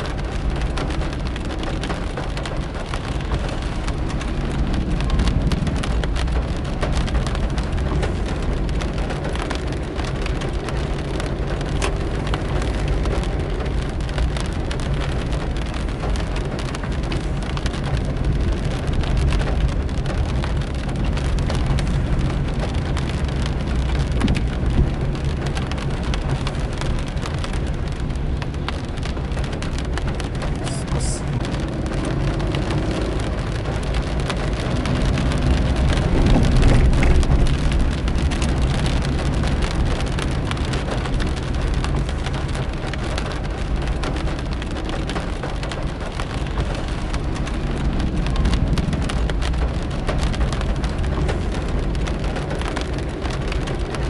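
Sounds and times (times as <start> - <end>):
car engine and tyres humming: 0.0 - 54.0
rain spattering on car roof: 0.0 - 54.0.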